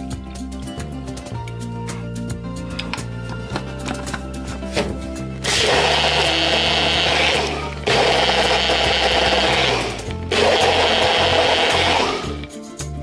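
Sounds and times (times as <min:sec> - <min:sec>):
blender motor blending liquid: 0:05.4 - 0:12.5.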